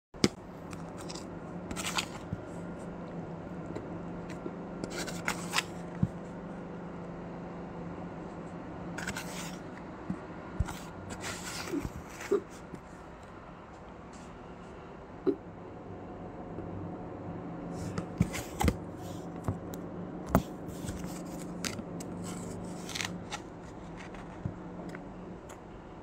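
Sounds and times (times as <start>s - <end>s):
steady low hum: 0.2s - 26.0s
spoon scraping frozen ice: 0.9s - 2.2s, 20.8s - 24.4s.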